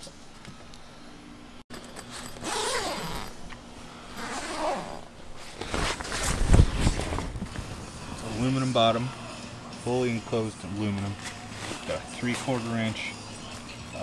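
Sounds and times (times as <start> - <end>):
zipper on tent fabric: 2.4 - 3.4, 4.2 - 7.3.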